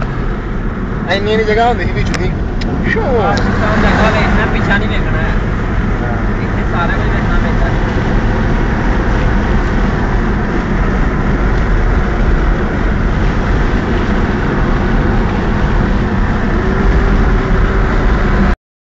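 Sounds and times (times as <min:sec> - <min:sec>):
car engine and road noise: 0:00.0 - 0:18.6.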